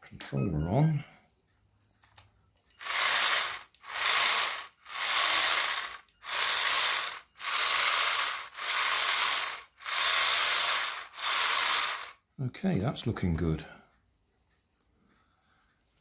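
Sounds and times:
small motor rattling gears: 0:02.8 - 0:12.2.

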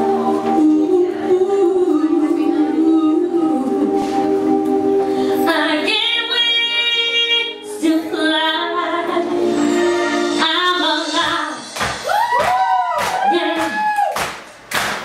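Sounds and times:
woman singing long notes: 0:00.0 - 0:09.5.

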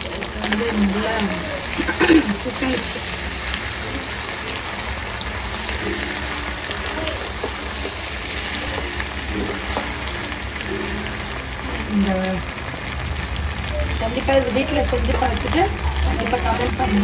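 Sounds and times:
wooden spatula stirring: 0:00.0 - 0:11.9
pasta sizzling in a pan: 0:00.0 - 0:17.0.

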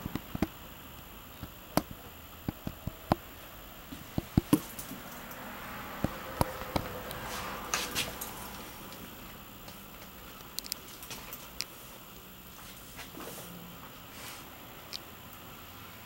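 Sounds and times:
sharp clicks and light taps: 0:00.0 - 0:03.3, 0:03.9 - 0:05.4, 0:06.0 - 0:07.2, 0:09.6 - 0:11.7.

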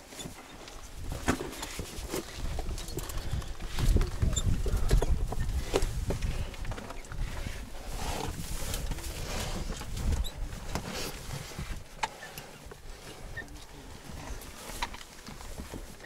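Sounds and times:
wind rumble on microphone: 0:01.8 - 0:11.9.

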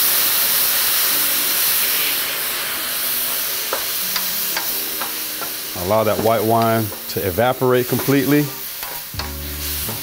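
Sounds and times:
wine hissing in hot pan: 0:00.0 - 0:10.0.

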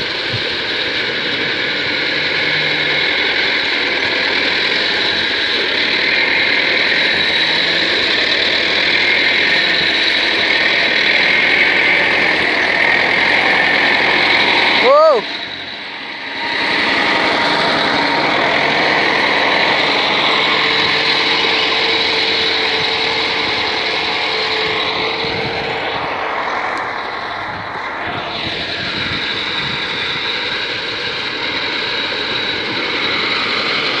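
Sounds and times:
track clatter: 0:00.0 - 0:34.0
tractor engine under load: 0:00.0 - 0:34.0.

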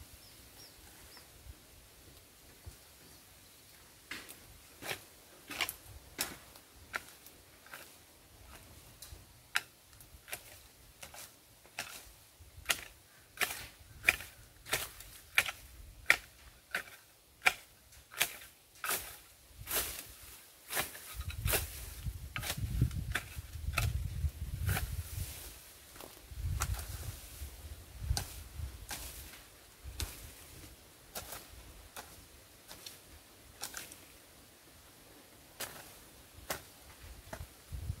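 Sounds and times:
hoe chopping into soil: 0:10.3 - 0:24.0, 0:31.1 - 0:33.0, 0:33.6 - 0:34.0, 0:35.6 - 0:36.7.

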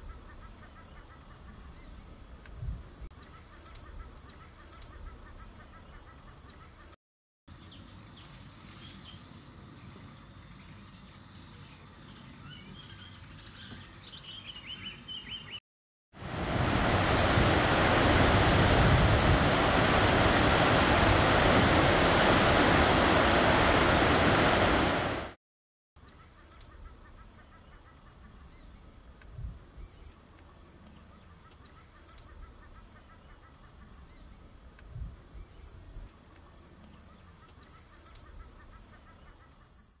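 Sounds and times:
high-pitched hiss: 0:00.0 - 0:07.0, 0:26.0 - 0:39.9
loud rush of noise: 0:16.2 - 0:25.4.

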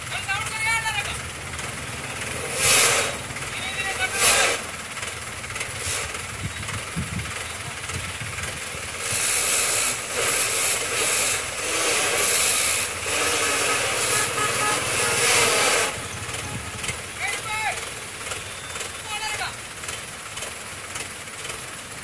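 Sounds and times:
heavy machinery hissing: 0:01.4 - 0:19.0.

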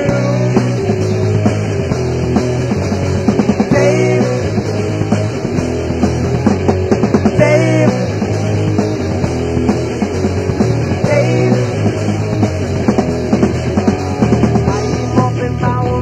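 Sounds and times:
rock band playing: 0:00.0 - 0:16.0.

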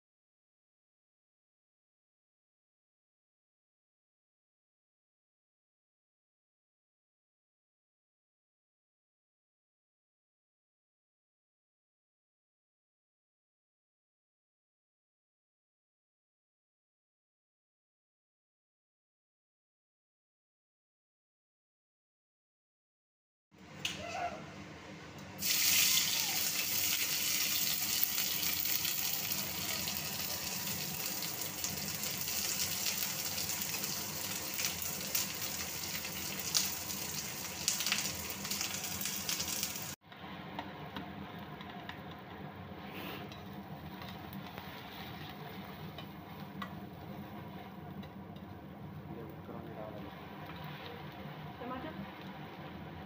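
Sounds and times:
onions sizzling in hot oil: 0:25.4 - 0:40.0, 0:43.4 - 0:47.6
spatula stirring in pan: 0:41.2 - 0:49.0.

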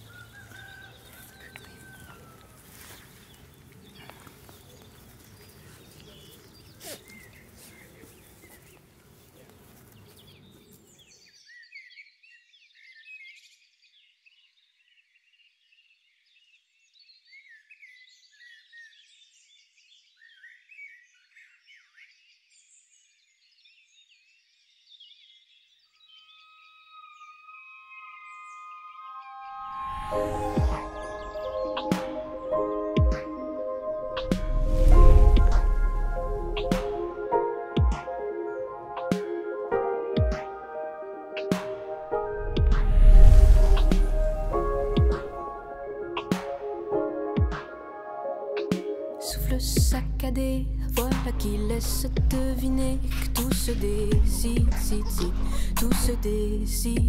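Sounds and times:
outdoor rustling: 0:00.0 - 0:11.3
high birdsong chirping: 0:00.0 - 0:40.4.

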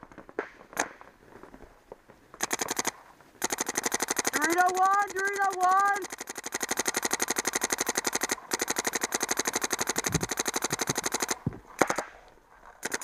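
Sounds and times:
paintball marker rapid firing: 0:02.4 - 0:12.2, 0:12.8 - 0:13.0.

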